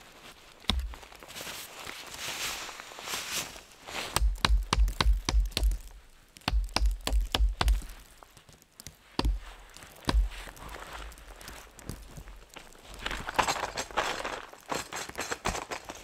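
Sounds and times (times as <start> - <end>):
hatchet knocking stake into ground: 0.7 - 1.0, 4.1 - 8.0, 9.2 - 10.6.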